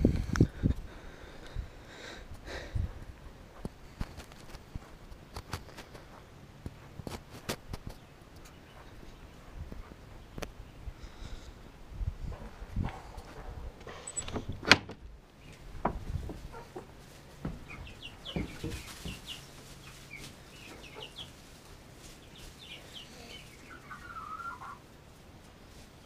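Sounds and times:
chicks peeping: 0:15.4 - 0:25.9.

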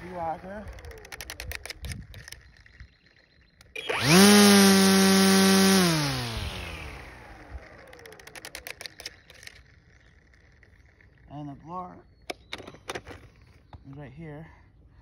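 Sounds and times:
string trimmer whine: 0:00.0 - 0:11.3.

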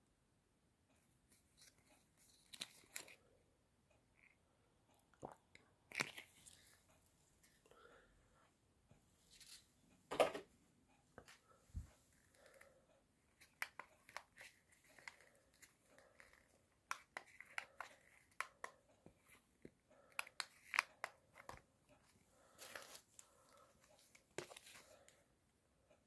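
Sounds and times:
paper rustling: 0:22.5 - 0:23.2.

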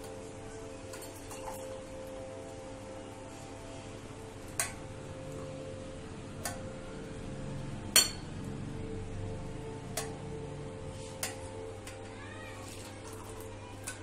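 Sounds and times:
metal clinking on mugs: 0:00.9 - 0:01.9.

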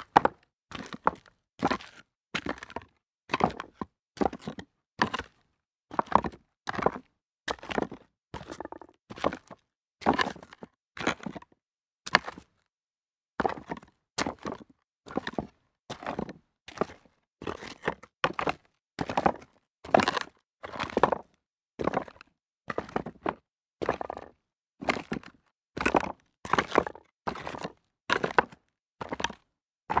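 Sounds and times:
footsteps on rocks: 0:08.6 - 0:08.9.

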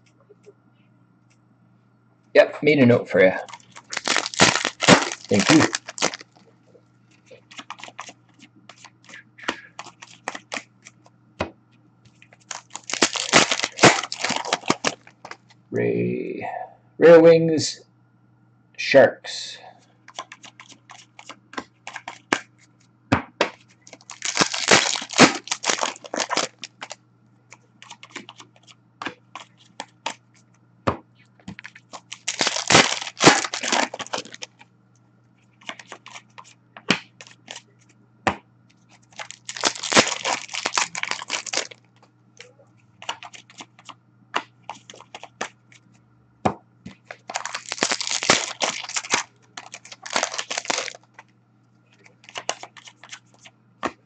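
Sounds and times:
foil wrappers tearing and crinkling: 0:03.4 - 0:06.4, 0:07.4 - 0:08.2, 0:09.6 - 0:10.6, 0:12.4 - 0:15.4, 0:21.9 - 0:22.5, 0:23.9 - 0:27.0, 0:27.8 - 0:28.7, 0:31.6 - 0:34.6, 0:35.6 - 0:36.5, 0:37.2 - 0:37.6, 0:38.9 - 0:41.8, 0:43.0 - 0:43.9, 0:47.1 - 0:51.2, 0:52.0 - 0:53.5
cards clicking and flicking: 0:03.7 - 0:06.2, 0:08.7 - 0:11.0, 0:20.1 - 0:22.5.

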